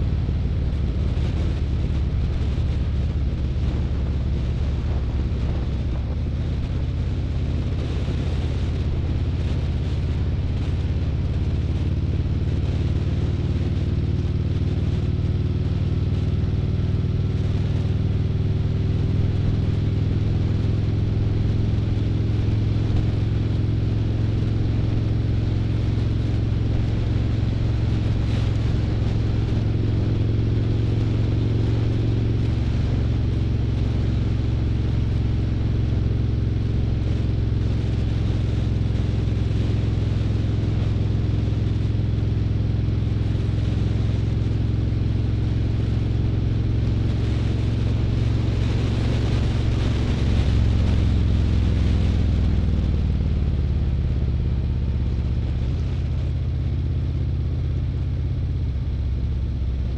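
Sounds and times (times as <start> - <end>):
motorcycle engine cruising: 0.0 - 59.9.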